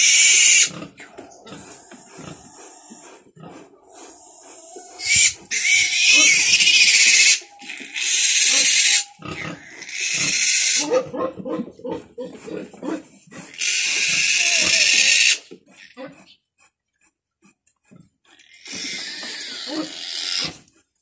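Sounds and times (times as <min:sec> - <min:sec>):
piglet grunting: 0:00.0 - 0:16.4, 0:17.9 - 0:20.7
piglet screaming: 0:04.7 - 0:11.1, 0:13.5 - 0:15.4.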